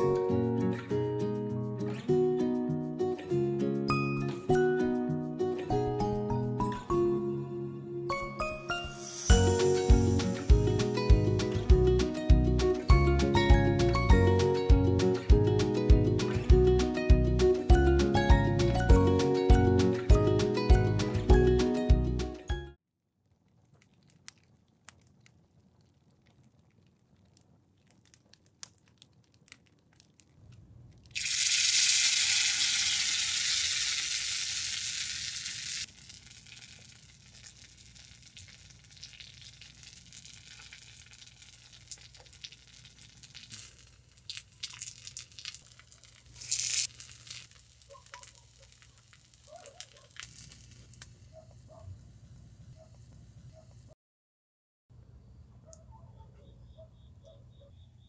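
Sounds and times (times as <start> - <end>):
food sizzling in hot oil: 9.0 - 10.7, 31.1 - 51.3
wood fire crackling: 23.3 - 51.5.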